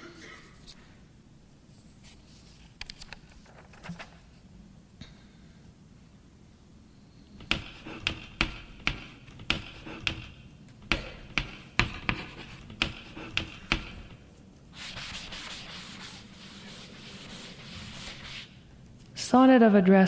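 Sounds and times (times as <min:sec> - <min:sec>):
sharp knocks: 0:07.4 - 0:14.2
rubbing or scraping noise: 0:11.3 - 0:18.6.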